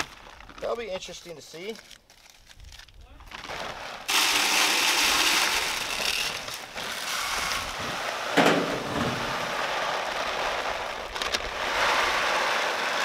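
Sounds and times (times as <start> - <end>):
feed pouring into plastic feeder: 4.1 - 10.8
thump: 8.4 - 9.5.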